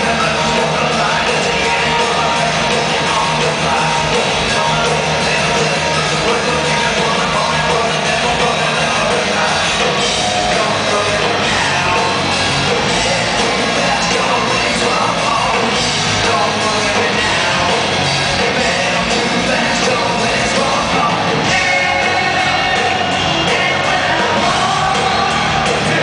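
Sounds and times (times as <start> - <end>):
live hard rock band: 0.0 - 26.0.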